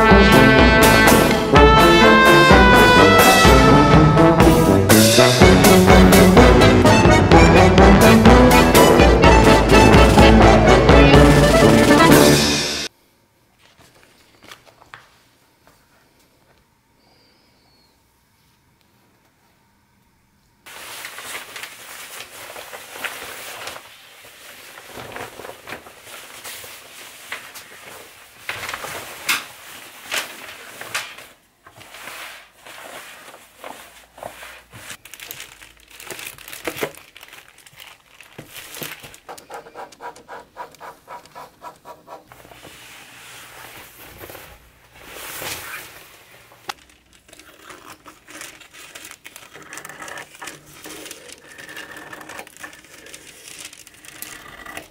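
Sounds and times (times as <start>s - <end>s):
paper and fabric rustling: 20.7s - 54.9s
scissors cutting paper: 46.8s - 54.9s.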